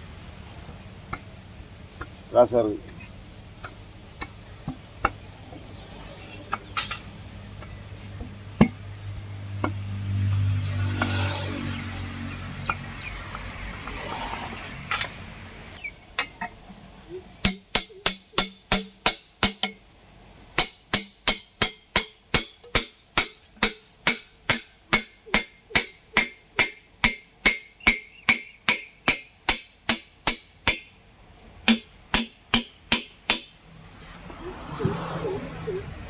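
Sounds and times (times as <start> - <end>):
hammer tapping on metal: 17.4 - 19.8, 31.6 - 33.6.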